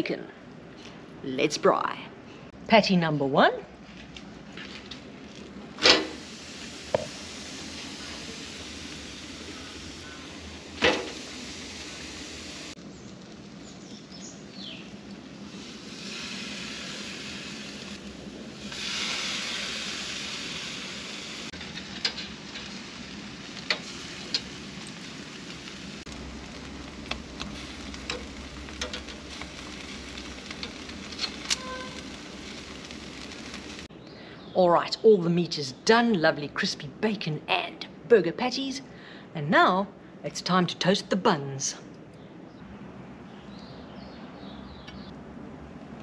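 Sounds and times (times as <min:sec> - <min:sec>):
meat sizzling on a grill: 0:05.3 - 0:33.9.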